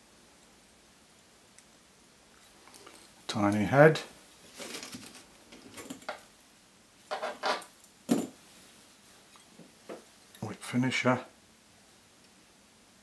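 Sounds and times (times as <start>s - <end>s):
metal tools rattling and scraping: 7.1s - 8.3s.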